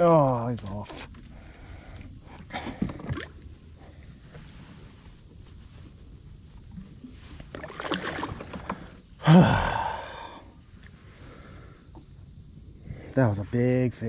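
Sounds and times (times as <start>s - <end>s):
man groaning: 9.2s - 10.4s.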